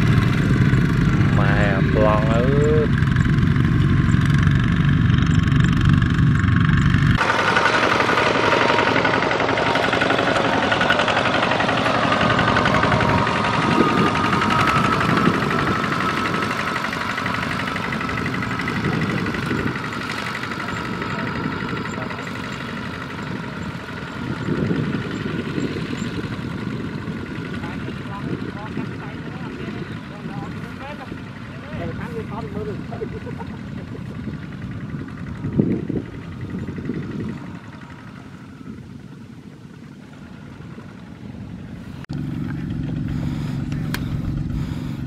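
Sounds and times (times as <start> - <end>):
diesel tractor engines running: 0.0 - 45.0.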